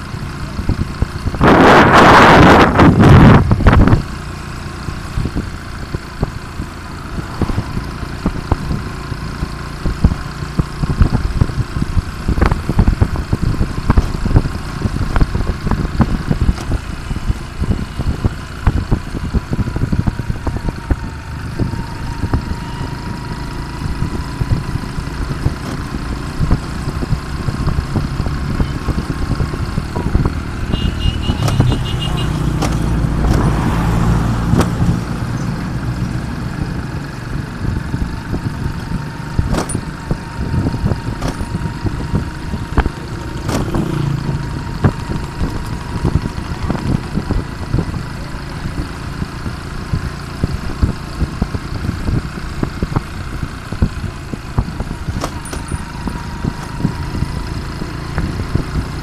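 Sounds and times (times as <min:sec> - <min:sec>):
motorcycle engine running: 0:00.0 - 0:59.0
wind on microphone: 0:00.6 - 0:04.1.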